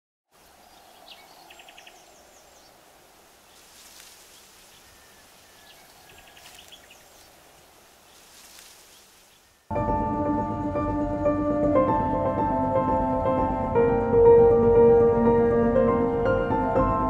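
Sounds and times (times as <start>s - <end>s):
small birds chirping: 0.4s - 9.7s.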